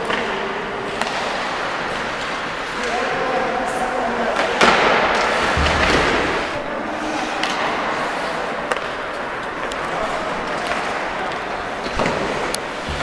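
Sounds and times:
skates scraping ice: 0.0 - 13.0
stick hitting puck: 1.0 - 1.4, 4.4 - 6.4, 8.7 - 13.0.

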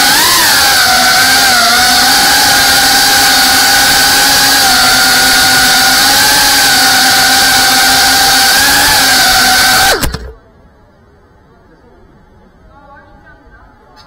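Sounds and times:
drone motors whining: 0.0 - 10.4.

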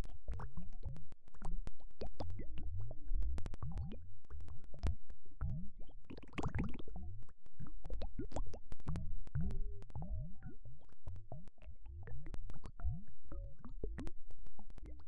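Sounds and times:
underwater bubbling: 5.5 - 7.0.

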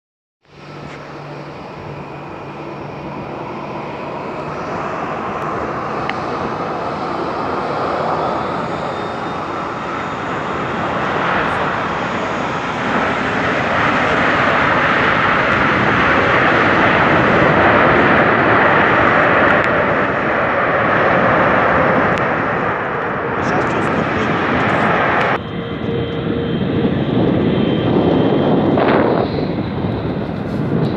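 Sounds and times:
jet engine roar: 0.4 - 30.9.

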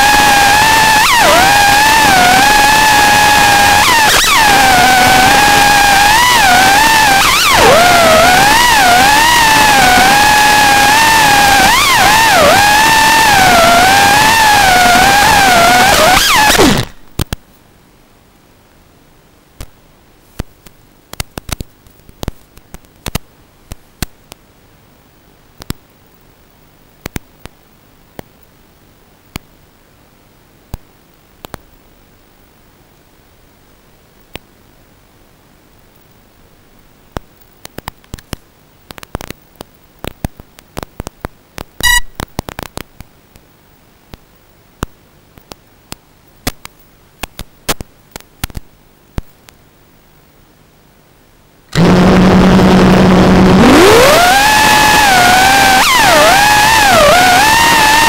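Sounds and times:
faint hum: 0.0 - 57.9
crackling static clicks and pops: 0.0 - 58.0
short electronic beep: 41.8 - 42.2.

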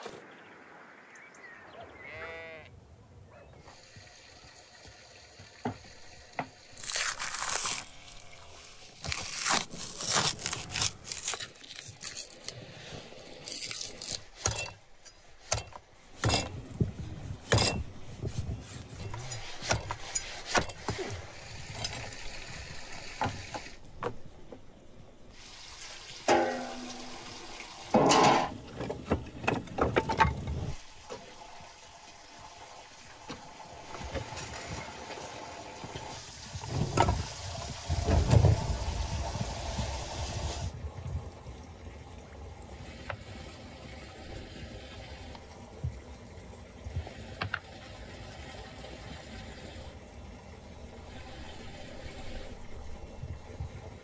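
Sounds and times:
liquid noises: 3.6 - 54.0
food preparation scrapes and clinks: 9.0 - 16.6.

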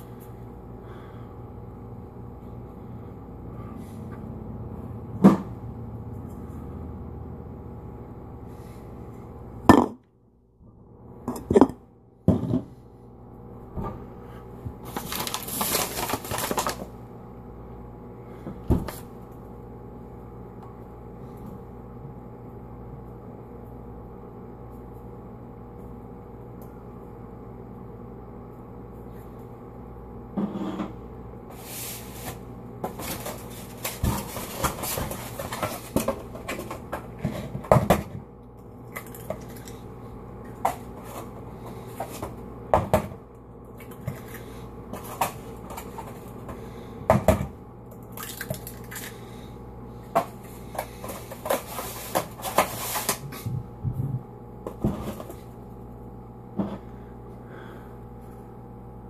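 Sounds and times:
steady low hum: 0.0 - 59.0
objects knocking on countertop: 9.7 - 10.0, 11.3 - 12.7
paper flour bag rustling: 14.8 - 17.0, 50.7 - 53.4.

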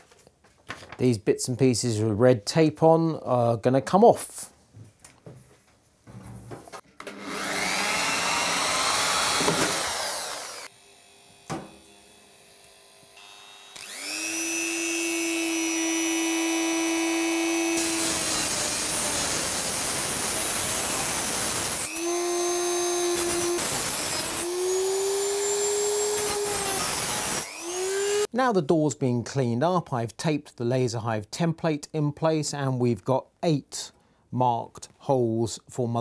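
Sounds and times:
power drill boring into metal: 7.0 - 10.8, 13.2 - 28.3
rotary tool grinding sheet steel: 7.1 - 28.3.

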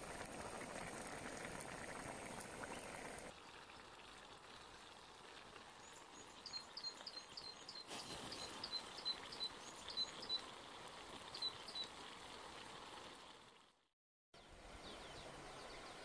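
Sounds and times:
faint outdoor hiss: 0.0 - 13.7, 14.4 - 16.0
bird chirping: 5.9 - 10.4, 14.4 - 16.0.

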